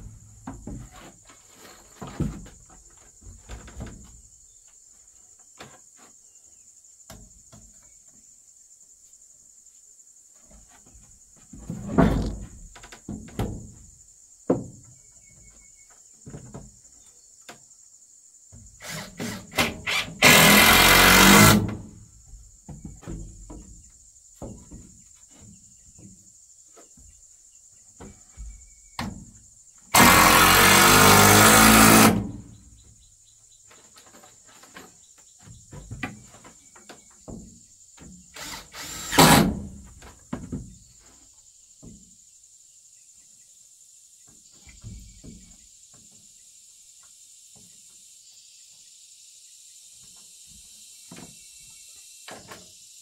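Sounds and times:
power drill running: 18.8s - 21.6s, 30.0s - 32.2s, 38.4s - 39.4s.

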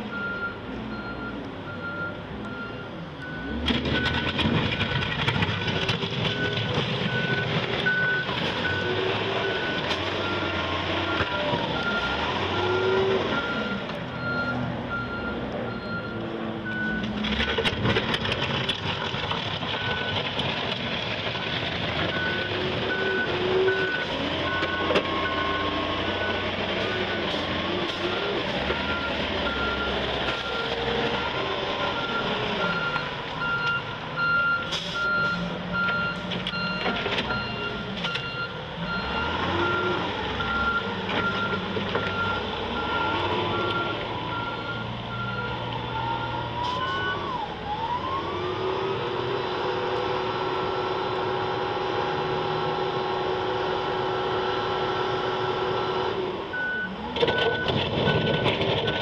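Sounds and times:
forklift engine running: 0.0s - 59.0s
reversing alarm beeping: 0.1s - 5.0s, 5.7s - 17.7s, 28.1s - 30.7s, 31.8s - 47.4s, 56.5s - 59.0s.

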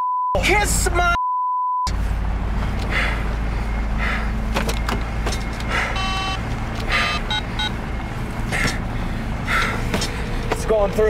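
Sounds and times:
truck engine and road rumble: 0.4s - 1.2s, 1.9s - 11.0s
keypad beeps: 4.6s - 7.8s
cellphone tone: 5.7s - 7.9s.

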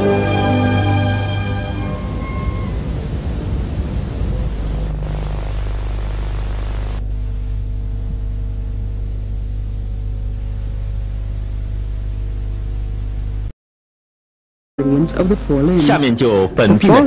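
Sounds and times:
tape hiss: 0.0s - 13.5s, 14.8s - 17.0s
low electrical hum: 0.9s - 13.5s.

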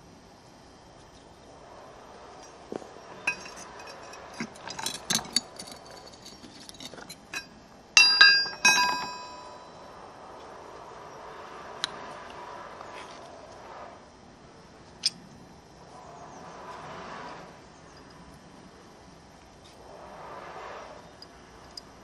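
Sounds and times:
pry bar scraping stone: 3.1s - 9.4s
metal tools clanking on stone: 3.2s - 9.7s.

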